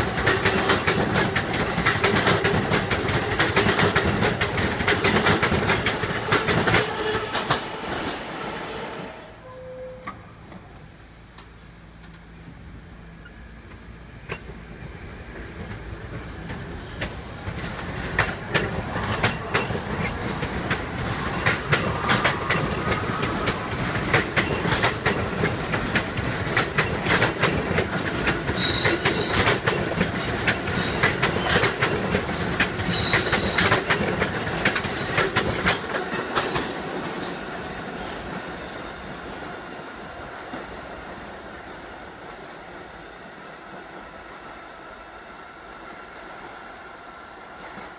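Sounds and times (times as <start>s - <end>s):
subway train passing: 0.0s - 47.9s
high wheel squeals: 28.6s - 29.6s, 32.9s - 33.9s.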